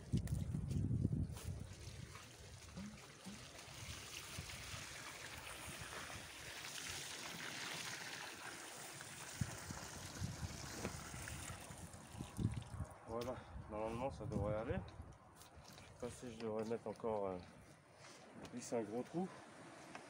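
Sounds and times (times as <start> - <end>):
water pouring from watering can: 1.2 - 12.9
water splashing into puddle: 1.5 - 12.9.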